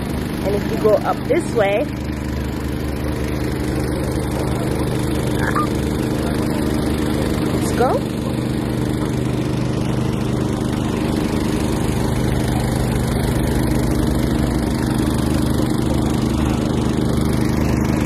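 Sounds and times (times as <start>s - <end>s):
engine running steadily: 0.0s - 18.0s.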